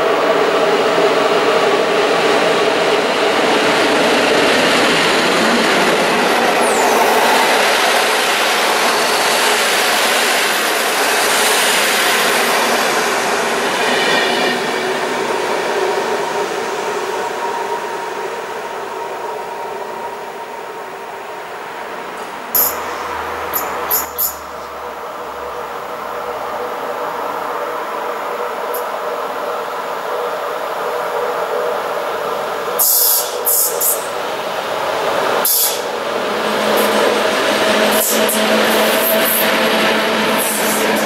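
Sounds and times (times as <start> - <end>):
train wheels rolling on rail: 0.0 - 41.0
high wheel squeals: 6.2 - 9.6, 22.6 - 24.7.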